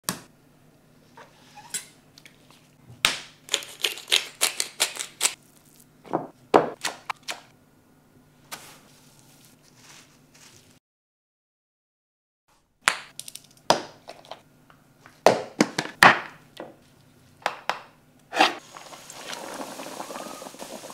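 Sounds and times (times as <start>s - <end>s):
breadcrumbs crunching: 8.5s - 10.8s.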